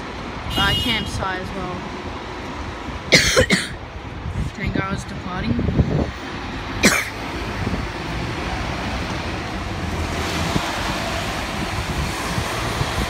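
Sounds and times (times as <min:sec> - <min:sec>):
street traffic: 0:00.0 - 0:13.0
wind noise on microphone: 0:00.0 - 0:13.0.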